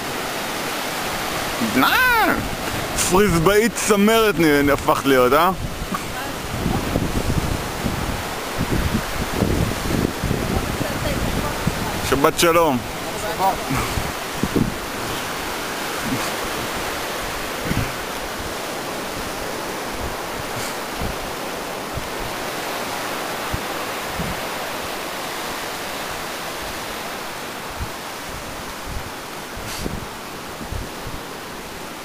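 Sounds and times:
sea surf breaking on beach: 0:00.0 - 0:32.0
wind thumps on microphone: 0:02.4 - 0:03.4, 0:04.5 - 0:24.9, 0:27.6 - 0:31.4.

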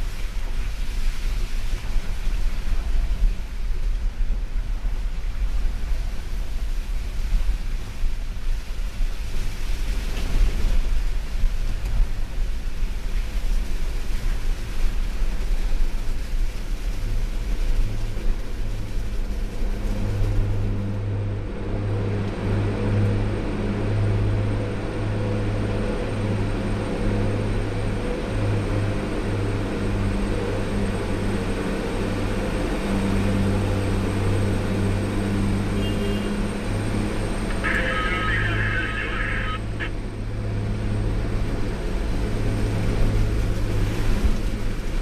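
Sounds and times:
rough road noise: 0:31.9 - 0:45.0
vehicle engine humming: 0:33.5 - 0:45.0.

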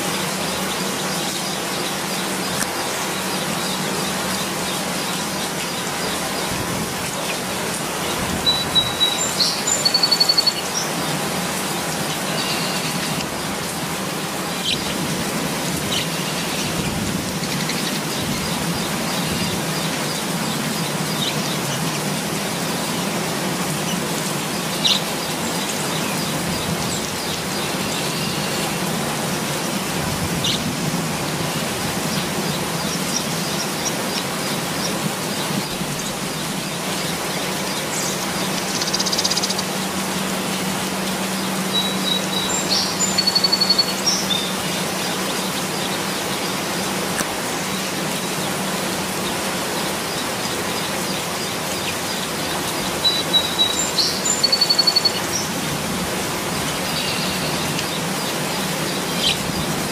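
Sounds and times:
rain falling on foliage: 0:00.0 - 0:59.9
bird chirping: 0:08.1 - 0:11.0, 0:11.9 - 0:13.5, 0:32.1 - 0:39.8, 0:40.5 - 0:46.6, 0:49.2 - 0:55.6, 0:56.5 - 0:59.8.

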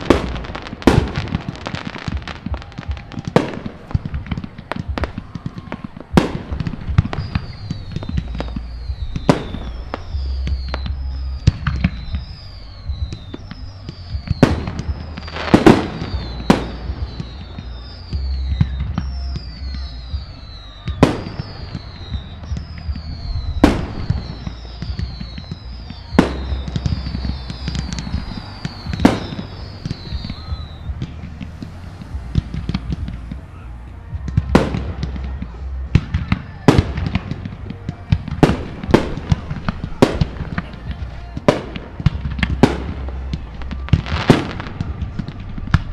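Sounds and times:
fireworks booming: 0:00.0 - 0:45.9
small fireworks pops: 0:00.0 - 0:45.9
high falling whistle: 0:07.0 - 0:34.3.

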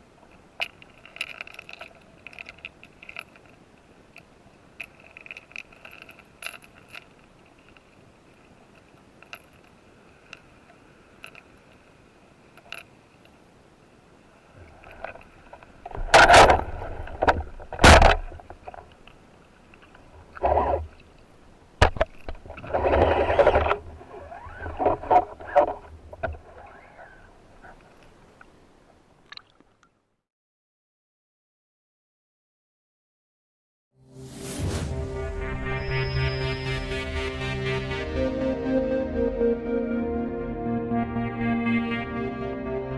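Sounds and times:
faint underwater clicks: 0:00.2 - 0:13.5, 0:14.6 - 0:30.0.

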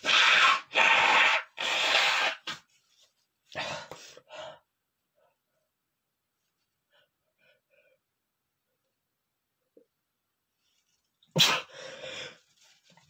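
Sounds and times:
man sneezing: 0:11.3 - 0:11.8.

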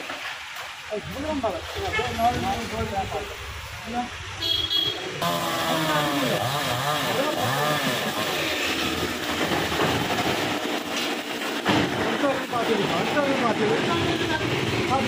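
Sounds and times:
chainsaw cutting wood: 0:05.2 - 0:12.0.

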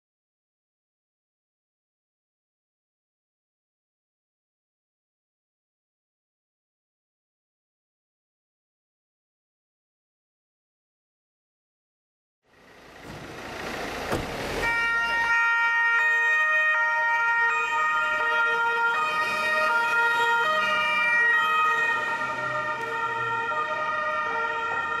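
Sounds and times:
two-tone police sirens: 0:13.0 - 0:25.0.

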